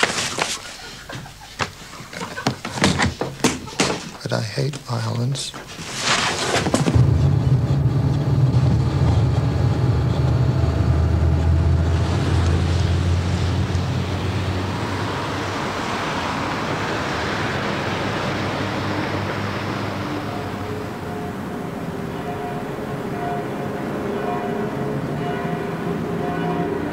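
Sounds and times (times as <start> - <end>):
low engine drone: 6.9 - 26.9
passing traffic hiss: 11.1 - 26.9.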